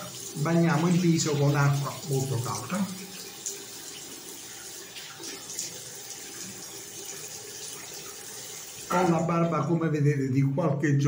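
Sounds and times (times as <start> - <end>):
tap water running into sink: 0.0 - 9.7.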